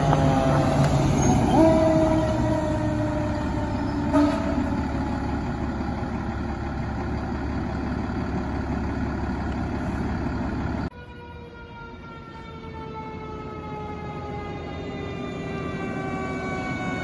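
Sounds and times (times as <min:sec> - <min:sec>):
fire engine horn: 0:00.0 - 0:05.3, 0:10.9 - 0:17.0
truck engine rumbling: 0:00.0 - 0:17.0.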